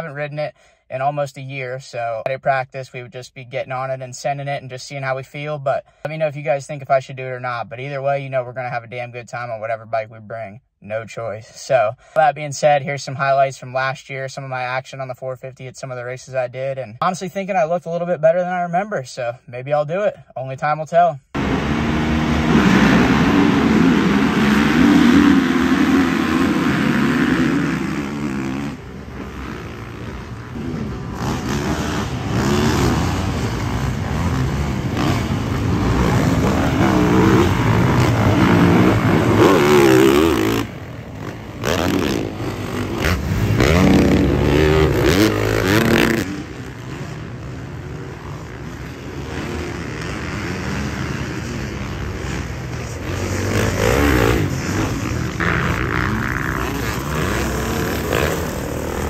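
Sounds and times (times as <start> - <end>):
dirt bike engines revving: 21.3 - 59.0.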